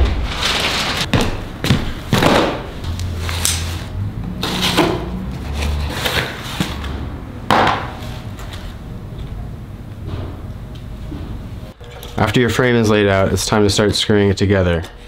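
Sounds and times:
wooden boards knocking: 7.5 - 8.0.

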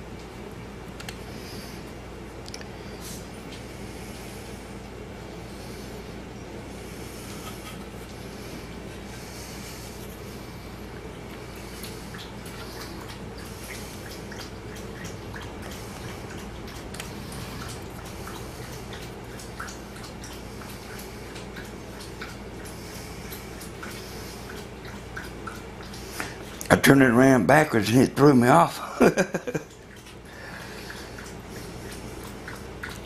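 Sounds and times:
steady low hum: 0.0 - 33.0
light clicks and ticks: 1.0 - 1.2.

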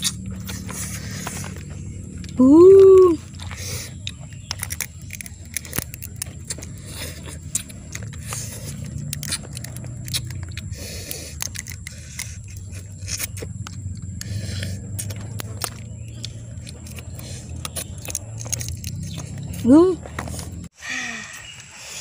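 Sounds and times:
crab shell cracking by hand: 3.3 - 20.4.

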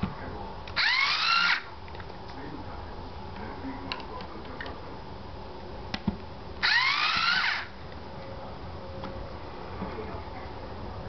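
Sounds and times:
small motor whining: 6.6 - 7.7.

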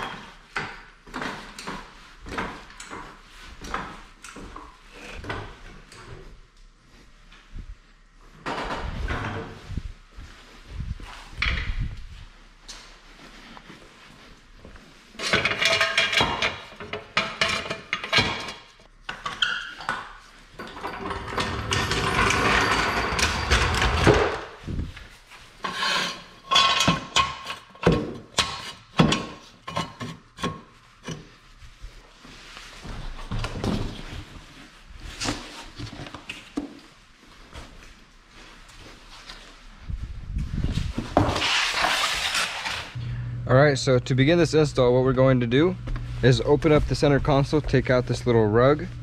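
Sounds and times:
metal scraping on concrete floor: 20.6 - 24.4, 25.6 - 27.0, 41.2 - 43.0.

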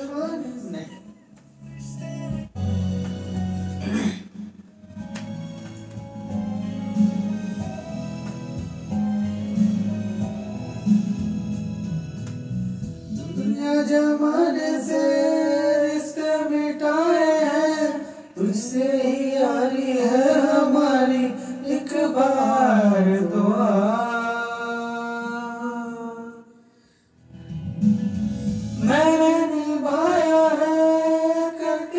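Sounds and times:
recorded backing music: 0.0 - 31.9
man singing into microphone: 13.1 - 26.5, 28.8 - 31.9.

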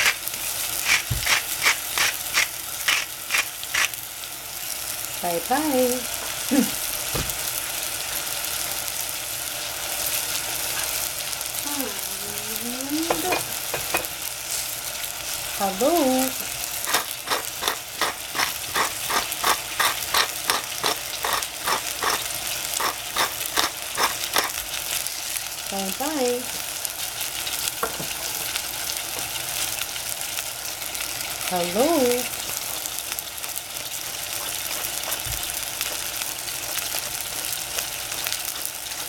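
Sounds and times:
tomatoes sizzling in hot oil: 0.0 - 39.0
pepper mill grinding clicks: 0.8 - 4.0, 16.9 - 24.6.

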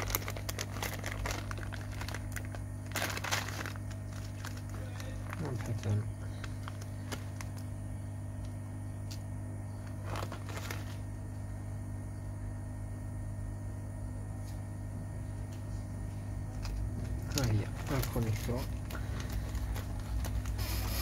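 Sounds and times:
plastic bag crinkling: 0.0 - 7.8, 9.8 - 11.2, 16.5 - 21.0.

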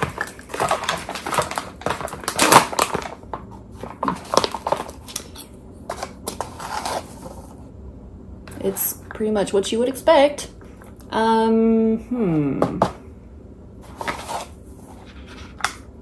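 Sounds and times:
plastic pouch crinkling: 0.0 - 5.4.

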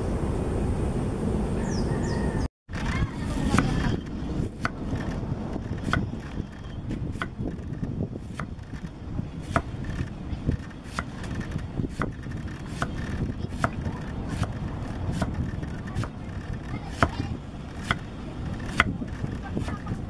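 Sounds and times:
low steady rumble: 0.0 - 20.0
knife chopping on wooden block: 5.7 - 6.5, 7.1 - 19.9.

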